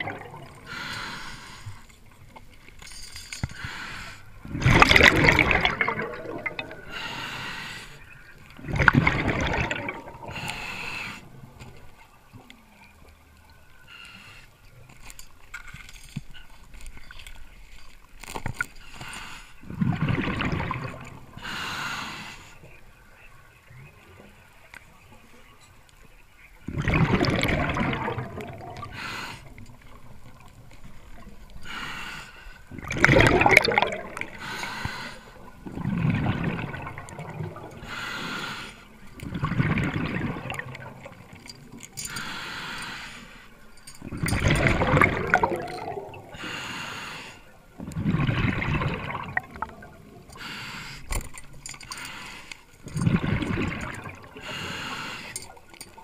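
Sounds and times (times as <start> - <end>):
bubbling diver exhalations: 0.0 - 1.5, 4.4 - 7.3, 8.6 - 10.8, 26.7 - 29.6, 32.7 - 38.5, 44.1 - 46.6, 47.8 - 50.5.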